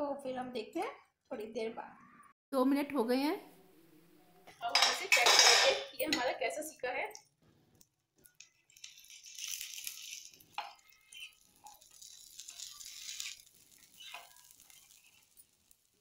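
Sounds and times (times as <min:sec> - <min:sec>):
metal spatula tapping and scraping: 0:04.7 - 0:06.4, 0:08.2 - 0:15.7
oil sizzling on a hot pan: 0:07.2 - 0:16.0.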